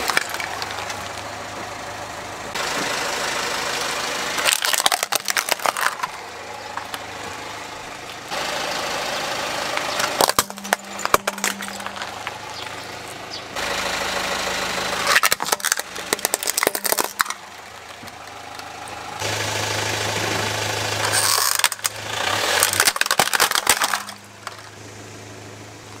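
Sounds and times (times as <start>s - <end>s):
plastic toys cracking and crunching: 0.0s - 1.3s, 4.4s - 7.1s, 10.0s - 12.7s, 15.1s - 19.0s, 21.0s - 24.8s
car engine humming: 0.0s - 26.0s.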